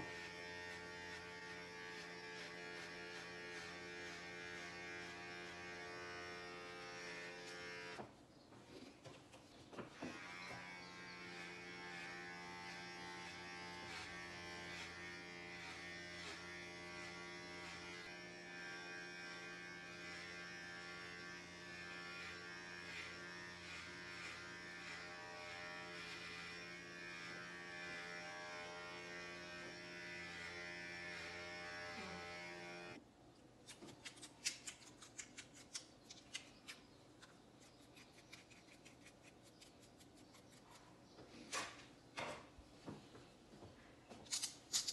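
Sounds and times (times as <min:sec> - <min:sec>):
electric hair clippers buzzing: 0:00.0 - 0:08.1, 0:10.0 - 0:33.0.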